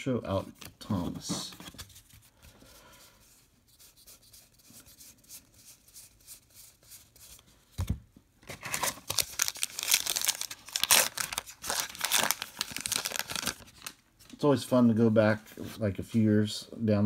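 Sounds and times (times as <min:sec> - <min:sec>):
foil wrapper tearing and crinkling: 0:08.6 - 0:13.9.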